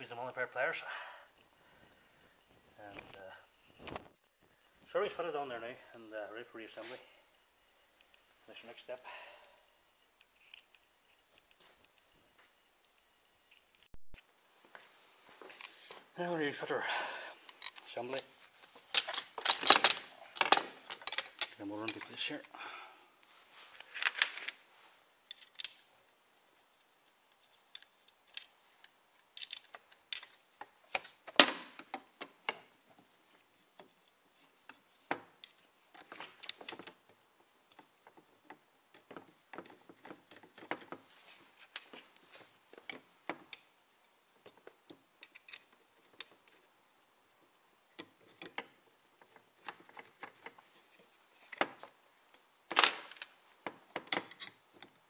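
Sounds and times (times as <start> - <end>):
light metal scrapes: 6.8 - 7.2
metallic clicks and knocks: 18.9 - 22.1.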